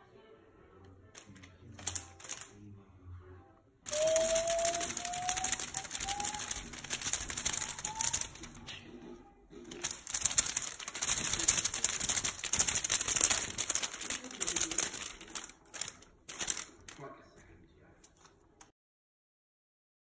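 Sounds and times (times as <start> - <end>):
crackly streamers rustling: 1.2 - 2.6, 3.9 - 17.4.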